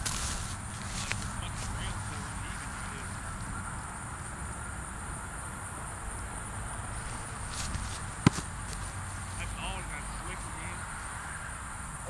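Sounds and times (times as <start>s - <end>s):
outdoor background hiss: 0.0s - 12.0s
football smacking into hands: 7.1s - 9.0s.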